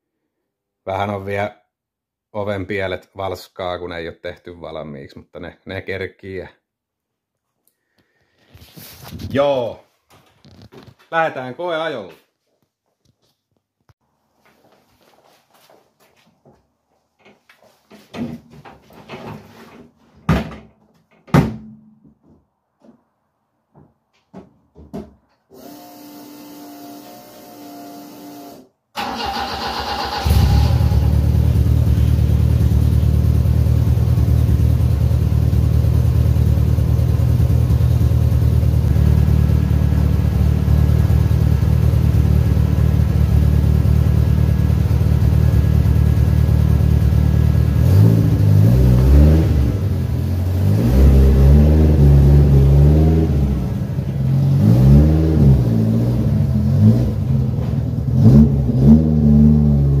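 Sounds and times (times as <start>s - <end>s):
car engine idling and revving: 29.7s - 60.0s.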